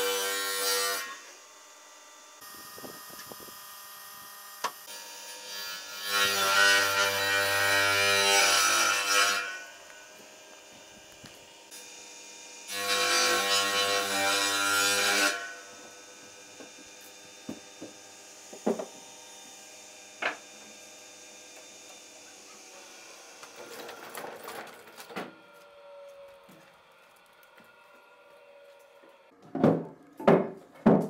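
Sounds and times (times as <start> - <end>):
saw cutting wood plank: 0.0 - 1.8, 2.4 - 29.3
wooden knocks and clatter: 29.4 - 31.0.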